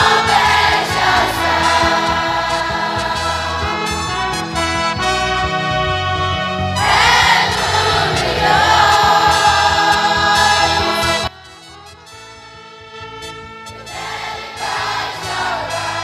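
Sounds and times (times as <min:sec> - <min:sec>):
children's choir singing: 0:00.0 - 0:04.2, 0:06.7 - 0:11.4, 0:13.8 - 0:16.0
trumpets: 0:00.0 - 0:16.0.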